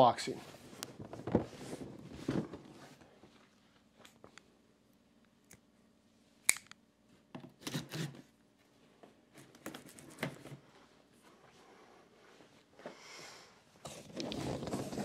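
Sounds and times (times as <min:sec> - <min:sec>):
sharp click: 0:06.5 - 0:06.8
box cutter slicing cardboard: 0:07.6 - 0:08.2.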